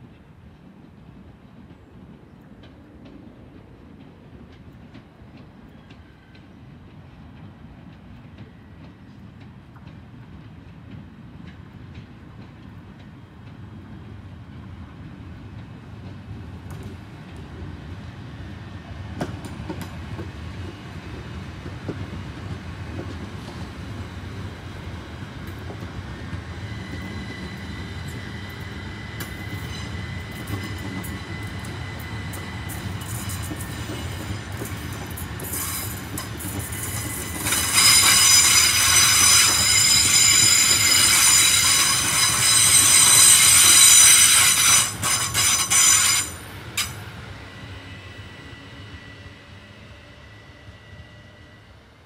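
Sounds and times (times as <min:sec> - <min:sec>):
train running rumble: 0:00.0 - 0:47.4
high-pitched wheel squeal: 0:37.2 - 0:46.4.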